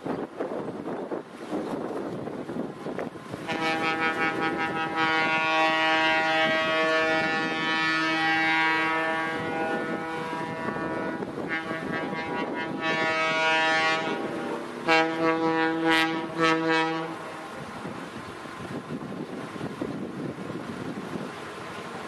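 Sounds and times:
electric locomotive horn: 3.5s - 17.3s.

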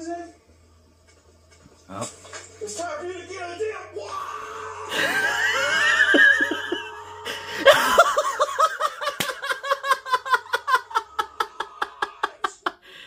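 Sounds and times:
shrill yell: 3.6s - 4.9s
man laughing hard: 4.9s - 12.8s.

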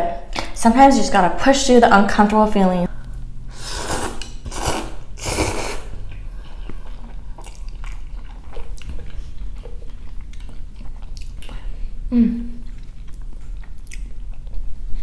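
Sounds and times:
slurping noodles: 3.5s - 6.0s
chewing with wet mouth clicks: 6.1s - 11.7s, 12.6s - 15.0s.

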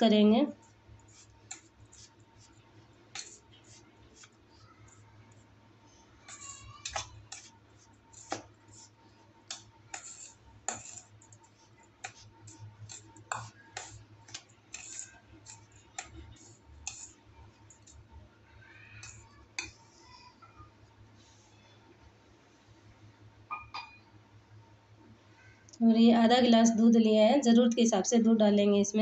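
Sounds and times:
spoon stirring dry crumbs: 0.5s - 20.2s.

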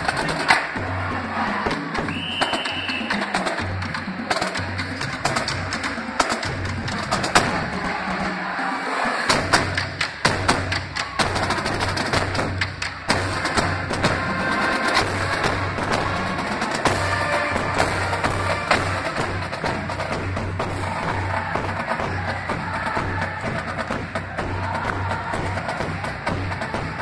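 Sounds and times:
drumline percussion cadence: 0.0s - 27.0s.

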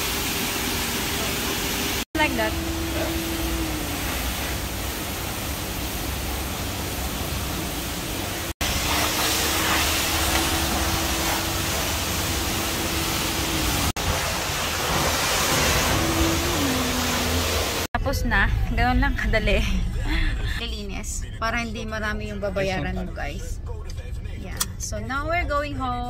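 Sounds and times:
high-pressure water spraying: 0.0s - 17.9s.

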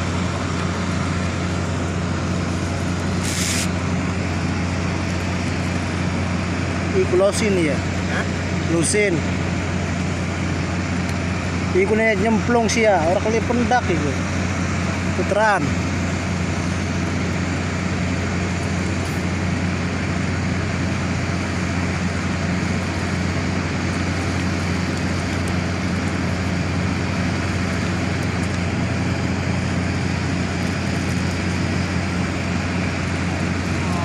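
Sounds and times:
low hum: 0.0s - 7.2s, 7.8s - 34.0s.

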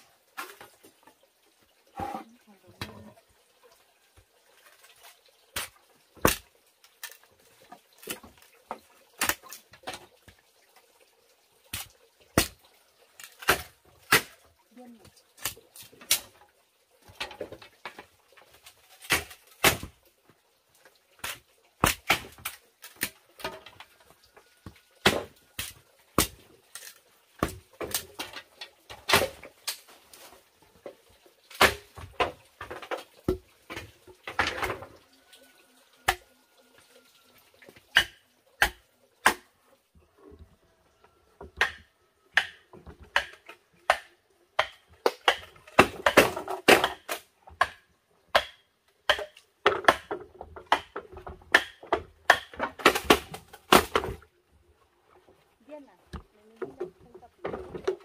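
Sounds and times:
machete chopping bamboo: 13.2s - 14.4s, 19.0s - 19.9s, 21.3s - 23.2s, 25.0s - 28.3s, 29.0s - 29.9s, 31.5s - 32.0s, 37.9s - 39.5s, 41.6s - 54.2s.

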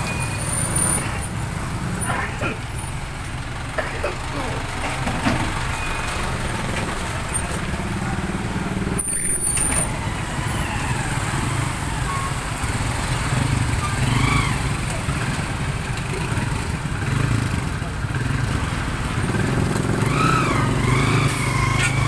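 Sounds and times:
truck engine idling: 0.0s - 22.0s
faint voices: 1.9s - 2.8s, 3.6s - 18.3s.

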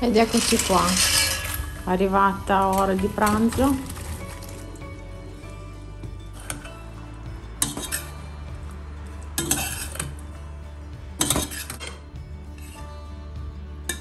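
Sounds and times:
metal utensil clanking in pot: 0.1s - 1.8s, 6.3s - 6.8s, 7.6s - 8.2s, 9.4s - 10.2s, 11.2s - 12.0s.

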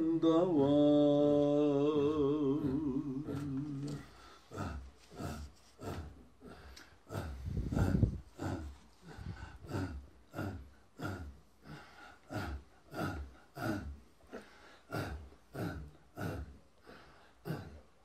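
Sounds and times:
breathy gasps: 3.9s - 17.8s.

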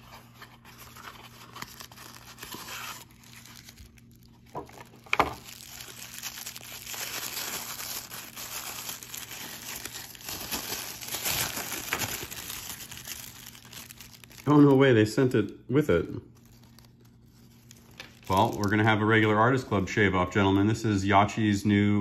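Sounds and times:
handling cardboard box: 0.0s - 3.8s
tissue paper crinkling: 0.0s - 15.4s, 16.3s - 19.6s.

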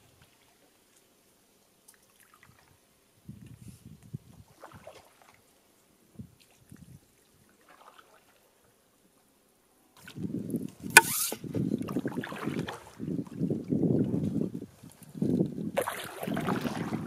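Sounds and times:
paddle drips and splashes: 0.0s - 1.1s, 1.8s - 2.8s, 4.4s - 8.8s, 10.0s - 13.8s, 15.8s - 17.0s
wind rumble on microphone: 2.5s - 5.0s, 6.1s - 7.1s, 10.0s - 17.0s
sharp knock: 11.0s - 11.2s.

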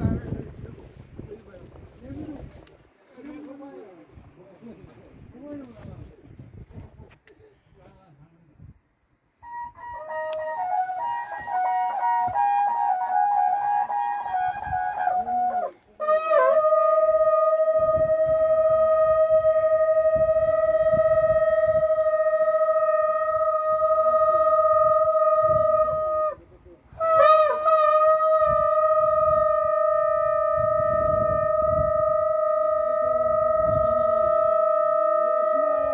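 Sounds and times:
wind instruments holding long notes: 9.4s - 35.9s.

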